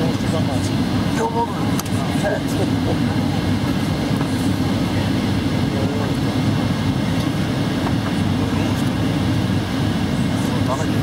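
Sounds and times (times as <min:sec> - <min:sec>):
airliner engine and airflow rumble: 0:00.0 - 0:11.0.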